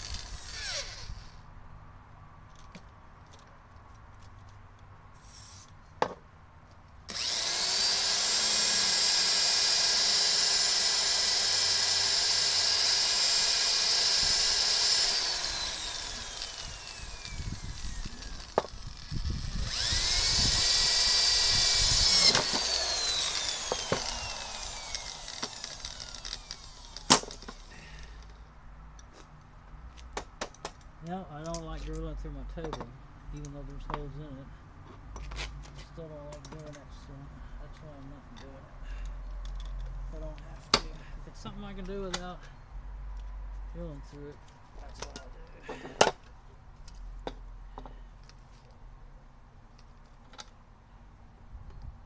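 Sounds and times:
electric drill drilling: 0.0s - 1.4s, 7.1s - 27.7s.

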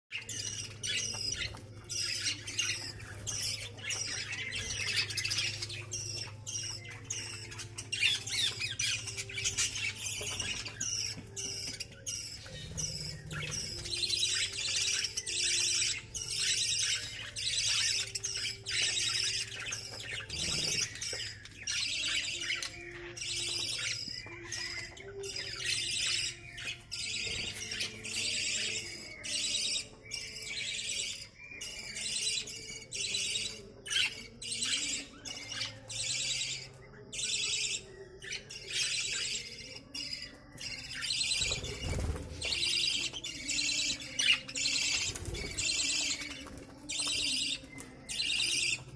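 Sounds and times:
budgerigars chattering and squawking: 0.1s - 48.9s.

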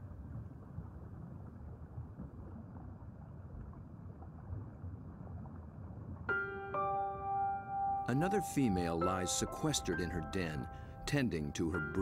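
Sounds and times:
underwater rumble and hiss: 0.0s - 6.3s.

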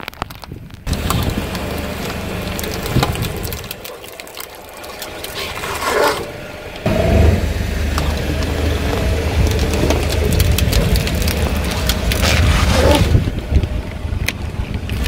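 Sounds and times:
aluminium foil duct crinkling: 0.0s - 6.3s, 8.0s - 13.8s
car engine hum: 0.8s - 15.0s.

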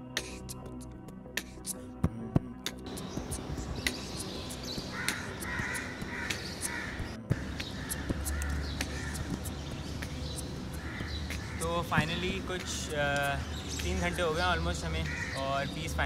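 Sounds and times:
outdoor background noise: 0.0s - 16.0s
crows cawing: 4.6s - 15.8s.

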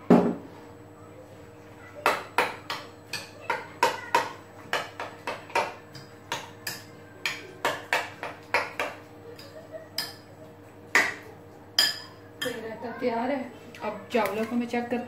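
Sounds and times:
spoon clinking against glass bowl: 11.8s - 12.6s.

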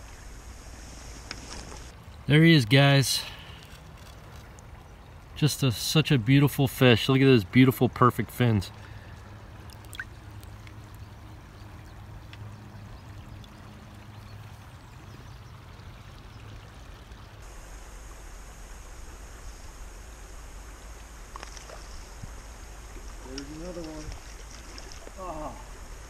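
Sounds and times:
river water flowing: 0.0s - 26.0s
faint click: 21.3s - 21.9s.

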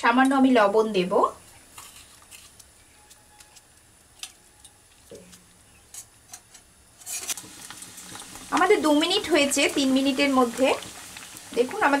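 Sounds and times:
water boiling: 6.4s - 12.0s.

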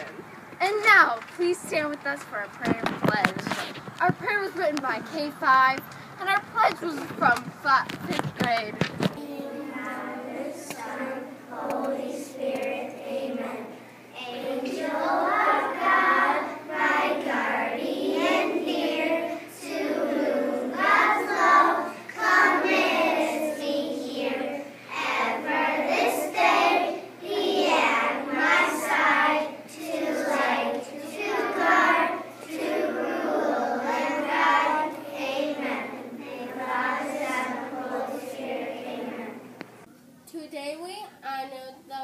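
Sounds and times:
children praying aloud in unison: 9.1s - 39.6s.

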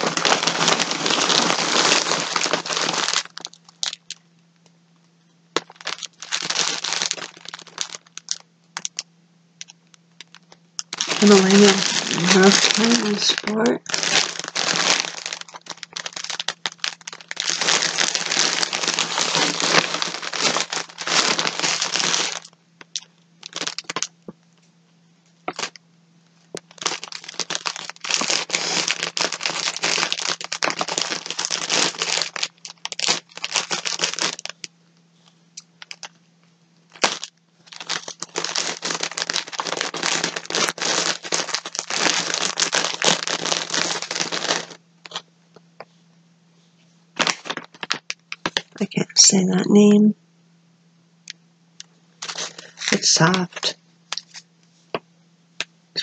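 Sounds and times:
plastic packaging crinkling: 0.0s - 4.6s, 5.6s - 24.4s, 25.4s - 25.8s, 26.4s - 36.2s, 36.9s - 45.9s, 47.2s - 48.9s, 51.8s - 55.0s.

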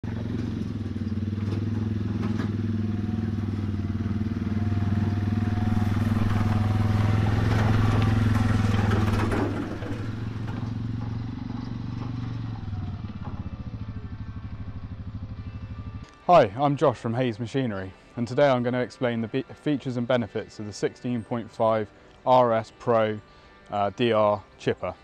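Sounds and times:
quad bike engine passing: 0.0s - 16.4s.

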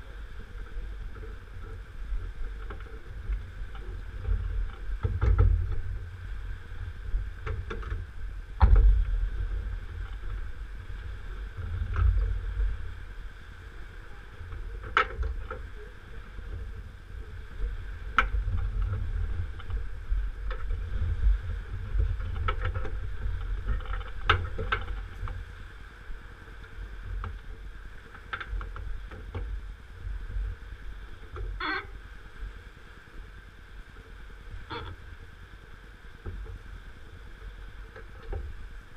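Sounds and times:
wind buffeting microphone: 0.0s - 38.9s
faint clicks: 26.3s - 29.6s.

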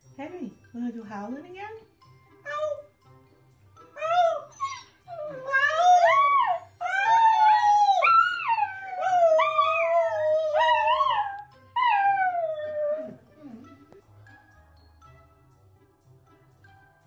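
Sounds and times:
small dog howling: 4.0s - 13.2s
woman howling: 5.2s - 13.2s.

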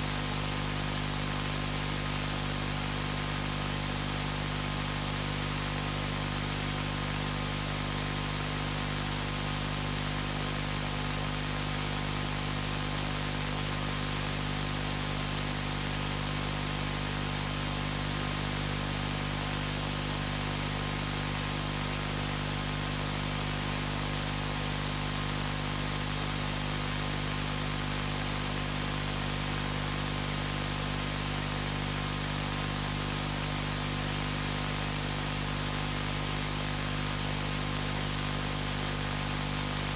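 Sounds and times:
low electrical hum: 14.2s - 16.7s
static hiss: 14.2s - 16.7s.

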